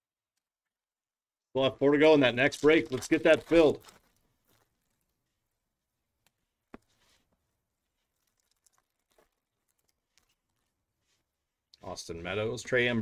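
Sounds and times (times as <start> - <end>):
cards and foil packs handled: 2.1 - 5.6.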